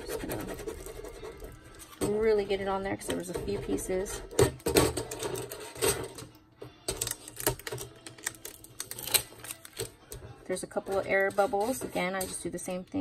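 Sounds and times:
scratchy rubs on paper sheets: 0:00.0 - 0:01.5
hands rubbing decal through transfer tape: 0:00.0 - 0:02.0.

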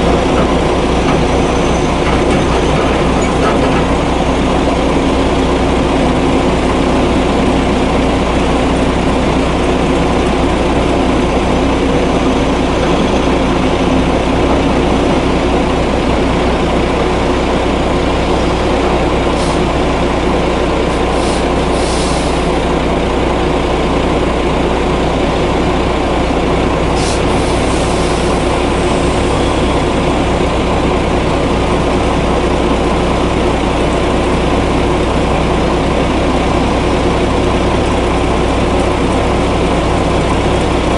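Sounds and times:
diesel truck engine running: 0:00.0 - 0:40.9
air hissing: 0:21.1 - 0:22.5, 0:27.0 - 0:28.3.

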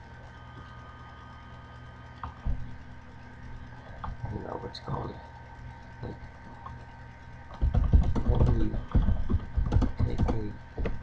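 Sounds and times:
typing on a computer keyboard: 0:07.5 - 0:11.0.

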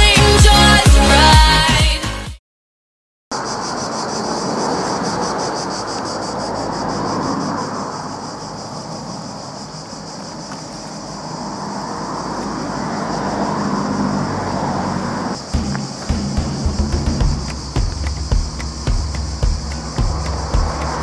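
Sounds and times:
cicadas shrilling: 0:03.3 - 0:21.0
low rushing noise: 0:14.2 - 0:21.0.

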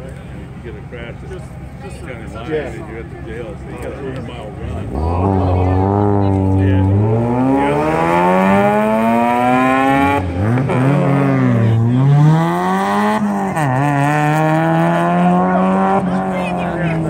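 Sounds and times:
car engine accelerating hard: 0:03.9 - 0:17.0.

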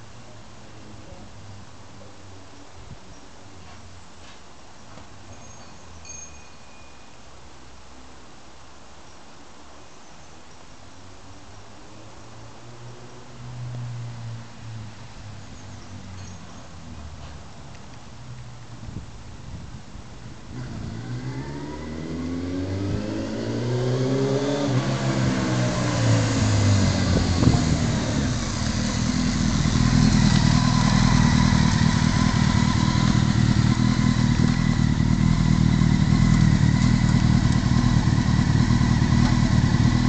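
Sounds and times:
motorcycle engine revving and idling: 0:20.5 - 0:40.0.

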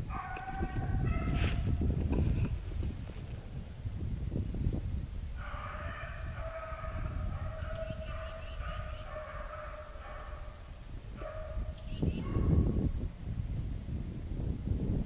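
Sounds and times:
low rumble on microphone: 0:00.0 - 0:05.4, 0:10.3 - 0:15.0
dogs baying: 0:05.4 - 0:10.6.

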